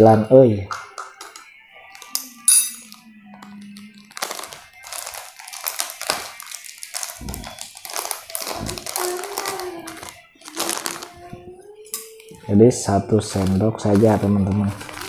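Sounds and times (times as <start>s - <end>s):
plastic packet crinkling: 3.4s - 11.4s, 12.1s - 15.0s.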